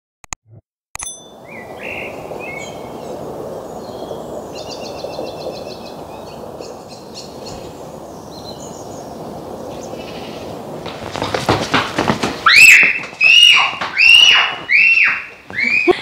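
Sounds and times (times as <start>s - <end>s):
songbirds chirping: 1.3s - 10.8s
steady rushing noise: 1.4s - 13.9s.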